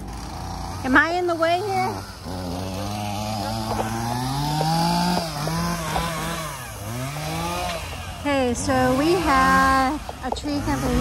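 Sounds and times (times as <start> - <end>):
chainsaw cutting a tree: 0.0 - 11.0.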